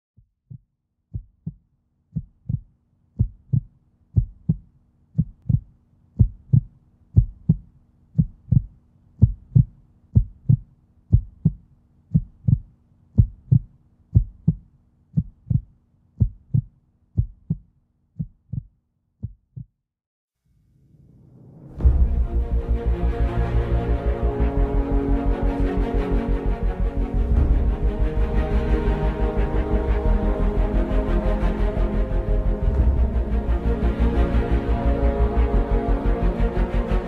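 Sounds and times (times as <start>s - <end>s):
heartbeat thumps: 0.2s - 19.7s.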